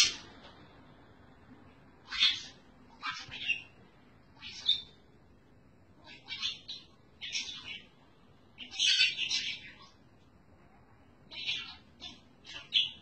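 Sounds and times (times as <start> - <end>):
budgerigar chirps and squawks: 2.0 - 5.0, 6.0 - 7.9, 8.6 - 10.0, 11.3 - 13.0.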